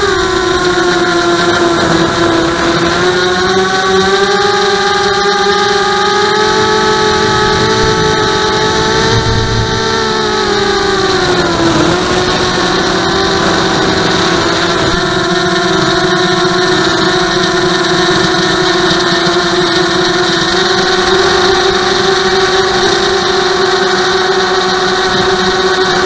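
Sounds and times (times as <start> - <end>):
drone motors whining: 0.0 - 26.0.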